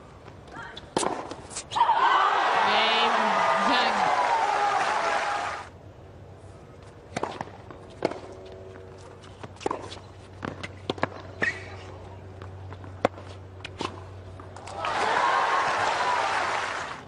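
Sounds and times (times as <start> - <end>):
tennis ball bouncing: 0.8 - 1.6, 7.1 - 11.8
racquet striking tennis ball: 0.9 - 1.6
crowd applause: 2.2 - 5.7, 14.6 - 17.0.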